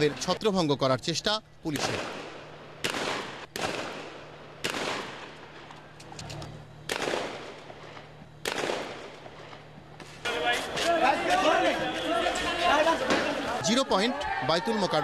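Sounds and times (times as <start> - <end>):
faint gunshot cracks: 1.7 - 5.3, 6.9 - 7.6, 8.4 - 9.1
loud gunfire blasts with echo: 1.7 - 5.6, 6.8 - 9.6.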